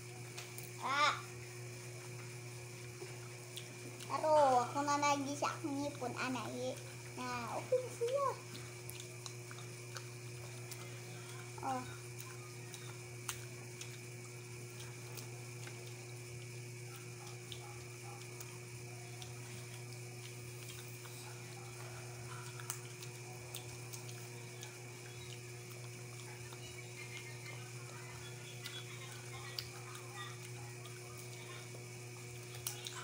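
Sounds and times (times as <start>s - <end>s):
low electrical hum: 0.0s - 33.0s.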